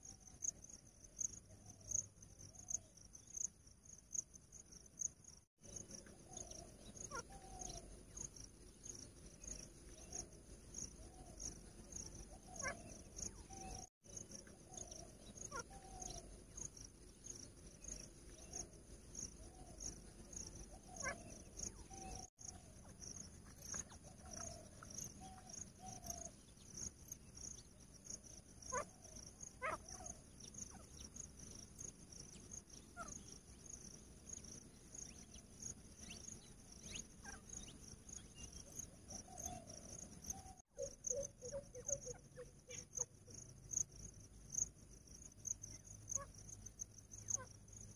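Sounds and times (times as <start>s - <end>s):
insects chirping: 0.0s - 47.9s.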